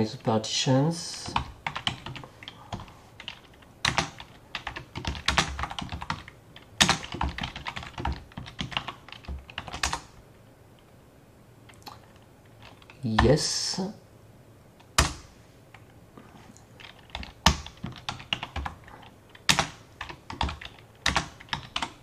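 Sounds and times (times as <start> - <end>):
typing on keyboard: 1.1 - 10.1, 16.8 - 22.0.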